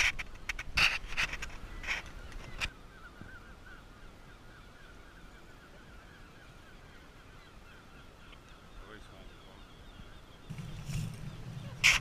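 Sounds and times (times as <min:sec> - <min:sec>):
faint bird calls: 0:00.0 - 0:12.0
low rumble: 0:10.5 - 0:12.0.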